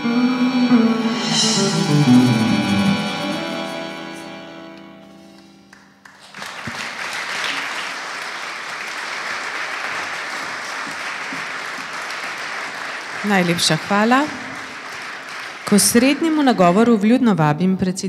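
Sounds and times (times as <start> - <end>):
band with accordion and guitar: 0.0 - 6.0
audience applause: 5.7 - 17.1.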